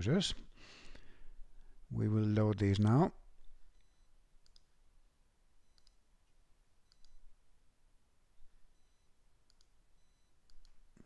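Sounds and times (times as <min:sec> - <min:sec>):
computer mouse clicks: 0:03.8 - 0:04.7, 0:05.7 - 0:06.0, 0:06.9 - 0:07.2, 0:09.5 - 0:09.8.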